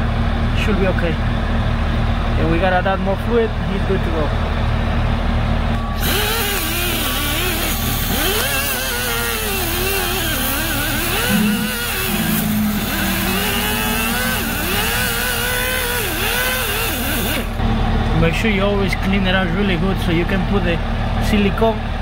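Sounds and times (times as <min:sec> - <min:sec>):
air grinder whining: 0:05.8 - 0:17.6.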